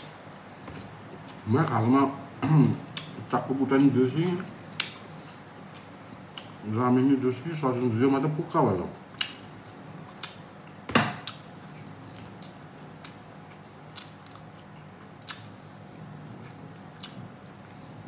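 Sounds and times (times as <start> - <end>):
faint steady hum: 0.0 - 18.0
chewing meat off bone: 9.1 - 18.0.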